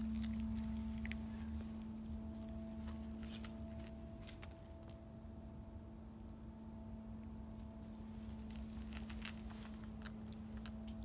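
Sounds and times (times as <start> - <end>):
cat crunching dry kibble: 0.0 - 1.6, 2.3 - 5.0, 7.5 - 11.0
steady low hum: 0.0 - 11.0.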